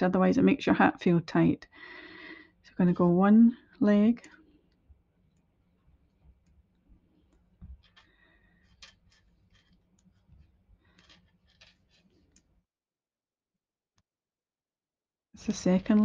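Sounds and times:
low room hum: 0:00.0 - 0:12.7.

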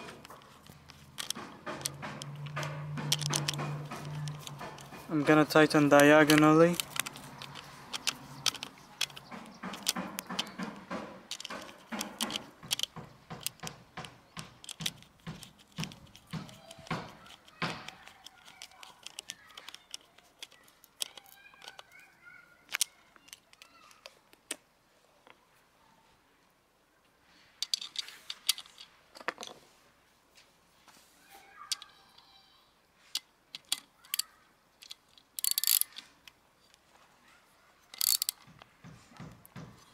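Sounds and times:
ratchet wrench clicking: 0:00.6 - 0:10.6, 0:11.3 - 0:13.7, 0:33.6 - 0:36.1, 0:37.9 - 0:38.5.

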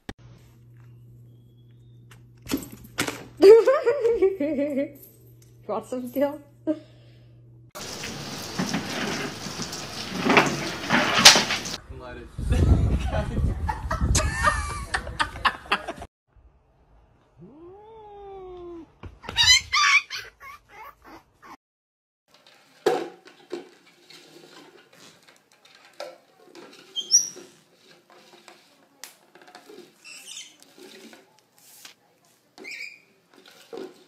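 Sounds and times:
plastic bowl scraping on wooden floor: 0:07.8 - 0:11.8, 0:22.3 - 0:31.4, 0:33.3 - 0:34.0.

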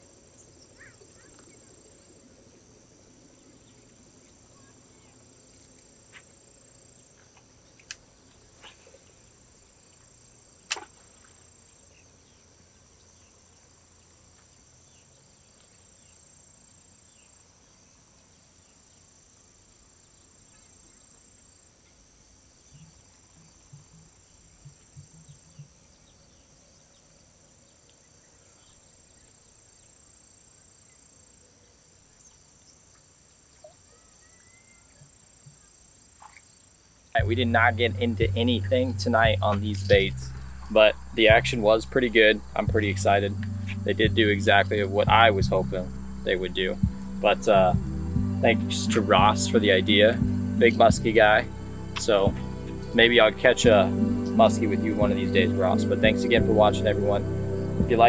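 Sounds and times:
crickets chirping: 0:00.0 - 0:58.0
sharp click: 0:10.7 - 0:10.9.

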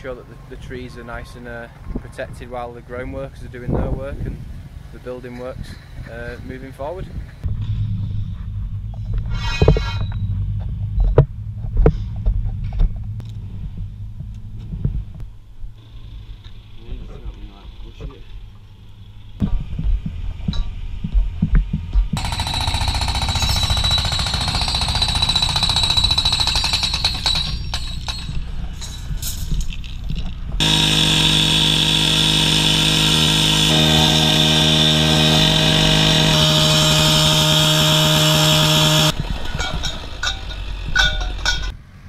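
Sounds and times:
cut-off saw grinding steel: 0:30.6 - 0:41.7.

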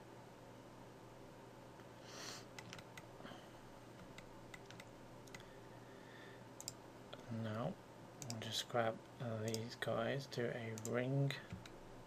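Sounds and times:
low steady hum: 0:00.0 - 0:12.0
mouse and keyboard clicks: 0:02.5 - 0:03.1, 0:04.0 - 0:05.4.

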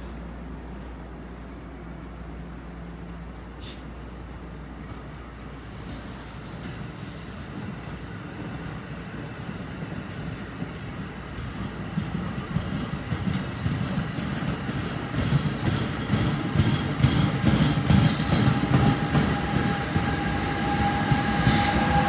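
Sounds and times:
train rumbling past: 0:00.0 - 0:22.0
high-pitched wheel squeal: 0:12.2 - 0:14.2.

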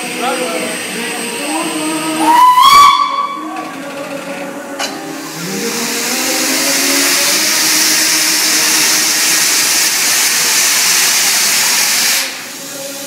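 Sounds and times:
steam hissing loudly: 0:00.0 - 0:13.0.

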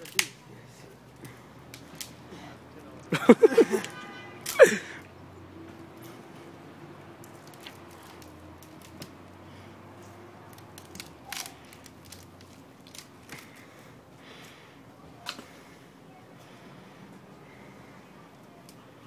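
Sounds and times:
stick cracking and creaking: 0:00.0 - 0:00.4, 0:01.1 - 0:02.3, 0:07.2 - 0:13.8.

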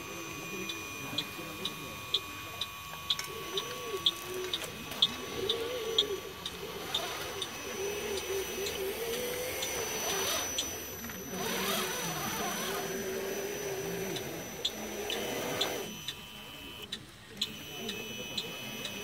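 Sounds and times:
electric hydraulic pump whining: 0:00.0 - 0:19.0
light regular ticks: 0:00.6 - 0:07.5.

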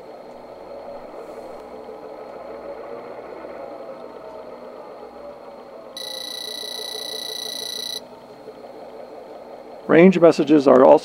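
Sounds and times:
faint steady background noise: 0:00.0 - 0:11.0
high electronic alert beep: 0:06.0 - 0:08.0.

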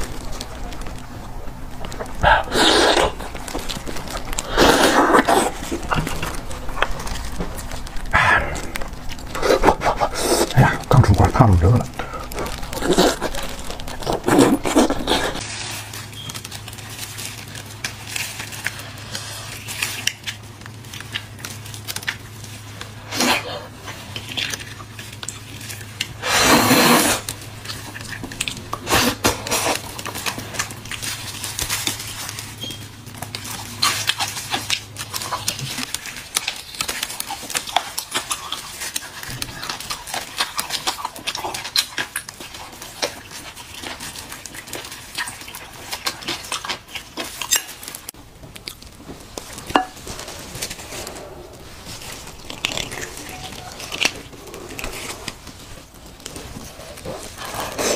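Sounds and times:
mouth noises: 0:00.0 - 0:15.4
gloved hands crinkling: 0:00.0 - 0:57.9
low steady hum: 0:00.0 - 0:57.9
loud sucking slurp: 0:02.2 - 0:03.2, 0:04.4 - 0:05.7, 0:26.2 - 0:27.2.

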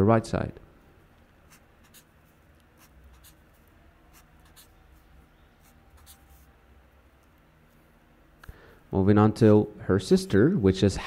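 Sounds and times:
marker scratching on paper: 0:01.5 - 0:06.5.

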